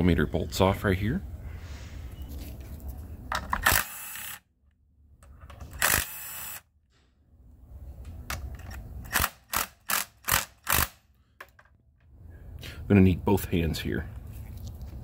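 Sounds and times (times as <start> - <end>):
cordless driver spinning: 5.6 - 6.6.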